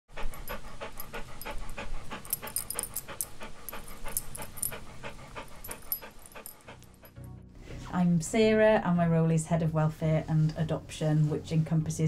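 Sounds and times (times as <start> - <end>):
dog panting: 0.1 - 7.2.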